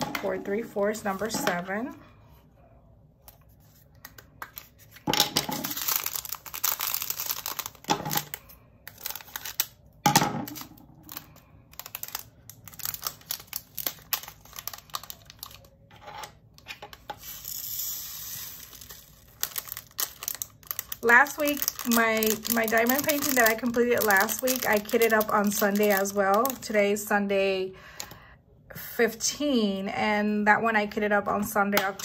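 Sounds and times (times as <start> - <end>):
plastic bags crinkling: 4.6 - 9.8, 10.5 - 15.8, 17.2 - 26.8
beads pouring into plastic container: 17.2 - 26.4.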